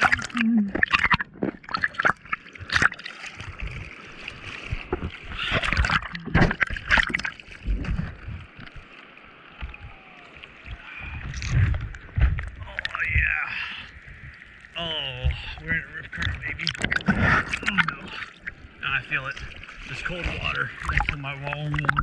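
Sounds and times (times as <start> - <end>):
water splashing from paddling: 0.0 - 22.0
steady watery hiss: 12.6 - 22.0.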